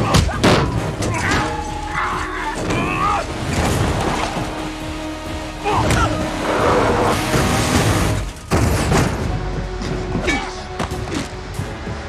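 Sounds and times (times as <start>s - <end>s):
people shouting: 0.0s - 7.2s
film music score: 0.0s - 12.0s
heavy truck rumbling: 0.0s - 12.0s.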